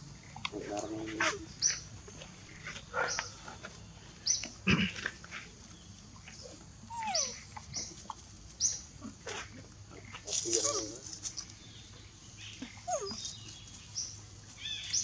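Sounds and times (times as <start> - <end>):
monkeys squeaking: 6.4 - 8.0, 12.6 - 13.6.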